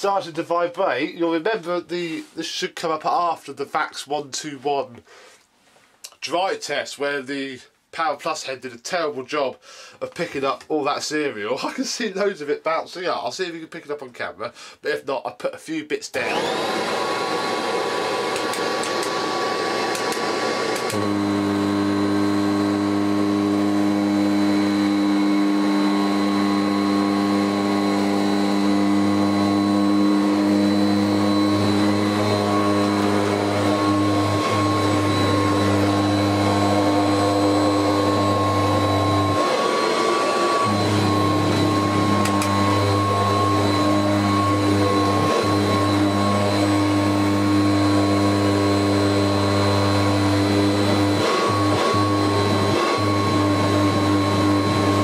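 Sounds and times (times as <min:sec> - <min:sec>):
vacuum cleaner running: 0:16.2 - 0:55.0.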